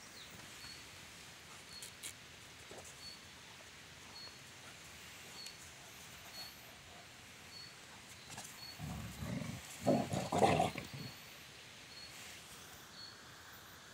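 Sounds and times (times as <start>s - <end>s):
dogs growling: 8.7s - 11.2s.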